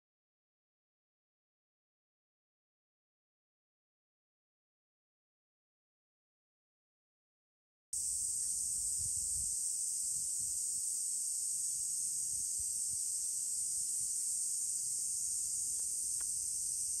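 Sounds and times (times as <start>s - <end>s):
chorus of insects droning: 8.0s - 17.0s.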